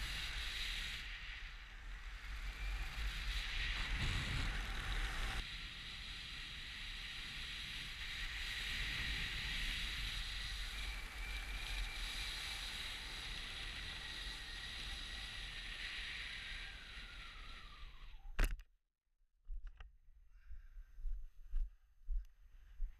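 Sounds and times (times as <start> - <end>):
wind rushing over camera: 0.0 - 18.3
faint whistle sliding down: 8.3 - 18.4
sharp click: 18.4 - 18.7.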